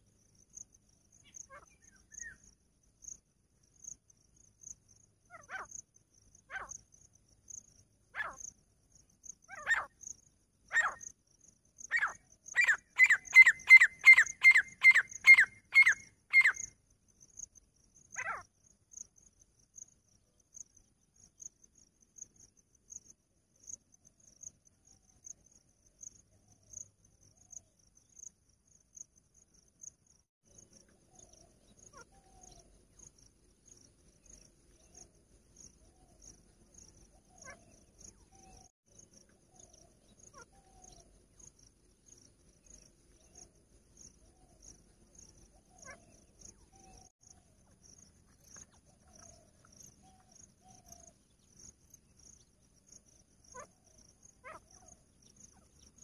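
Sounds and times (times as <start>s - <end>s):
faint insect ticking: 0.0s - 13.4s, 14.2s - 56.0s
francolin calling: 1.2s - 2.6s, 5.3s - 5.8s, 6.4s - 6.8s, 8.2s - 8.5s, 9.4s - 10.0s, 10.7s - 11.1s, 11.8s - 16.8s, 18.1s - 18.5s, 35.8s - 38.7s, 44.2s - 51.4s, 53.4s - 56.0s.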